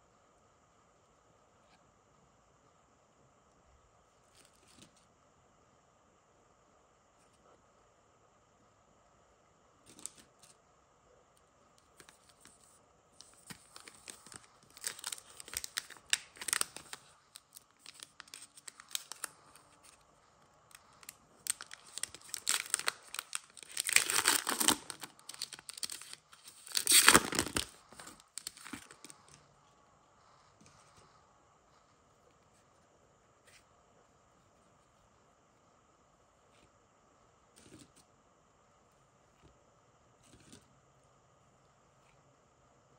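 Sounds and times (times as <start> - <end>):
foil pack crinkling: 13.2 - 20.0, 20.8 - 29.3
foil pack ripping: 13.5 - 19.4, 21.4 - 27.8.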